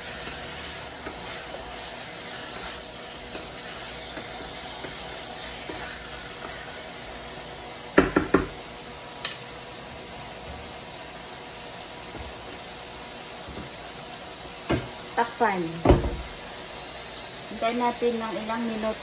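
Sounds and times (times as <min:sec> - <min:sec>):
wooden spatula scraping wok: 0:00.0 - 0:07.3
chicken sizzling in oil: 0:00.0 - 0:19.0
spatula knocking against pan: 0:08.0 - 0:08.6.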